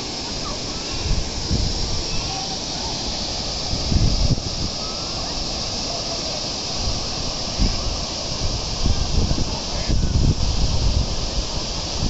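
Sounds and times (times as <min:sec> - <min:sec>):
waterfall rushing: 0:00.0 - 0:12.0
wind buffeting microphone: 0:00.9 - 0:02.6, 0:03.4 - 0:05.8, 0:06.7 - 0:12.0.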